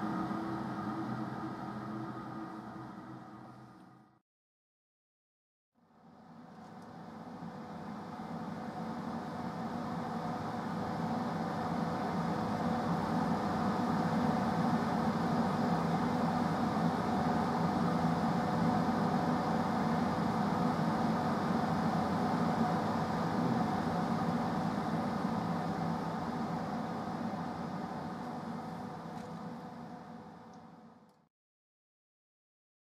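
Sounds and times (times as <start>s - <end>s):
extractor fan rushing air: 0.0s - 4.2s, 7.4s - 30.6s
low hum: 0.0s - 4.2s.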